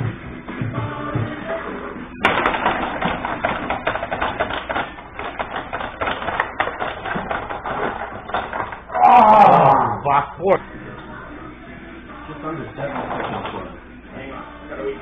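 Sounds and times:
table hockey clatter: 2.2s - 9.0s, 12.8s - 13.8s.

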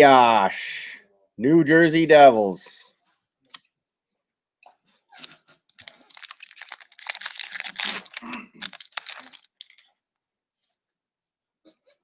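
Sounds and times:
foil wrapper tearing and crinkling: 5.7s - 9.9s.

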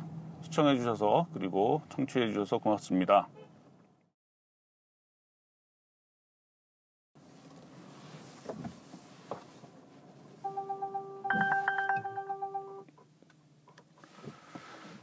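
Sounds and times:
steady warning tone: 10.4s - 12.8s
quick electronic beeps: 10.5s - 12.8s
rapid warning chimes: 10.5s - 12.8s.

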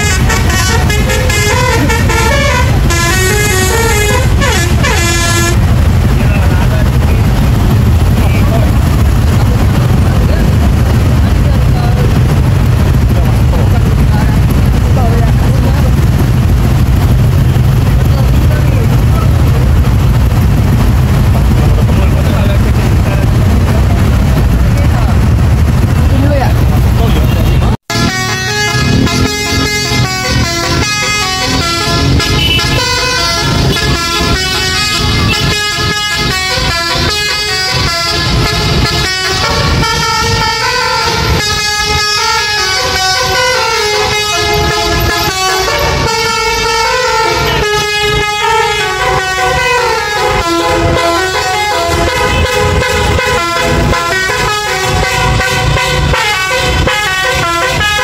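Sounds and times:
melodic bus horn: 0.0s - 6.2s, 27.1s - 58.0s
engines and traffic: 0.0s - 58.0s.

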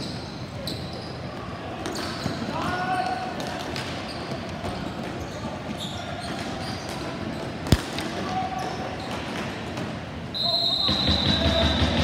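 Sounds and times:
loud sharp crack: 7.7s - 8.2s.

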